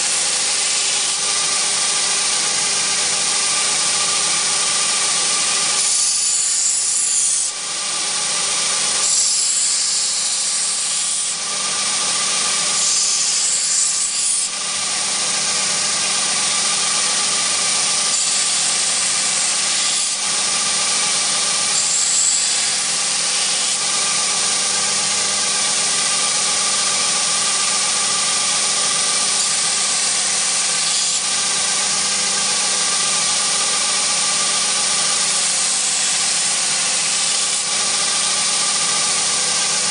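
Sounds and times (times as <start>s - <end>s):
belt grinder motor hum: 0.0s - 39.9s
blade grinding hiss: 9.0s - 11.4s, 12.6s - 14.5s, 17.6s - 20.2s, 21.0s - 24.0s, 29.1s - 31.3s, 33.0s - 39.9s.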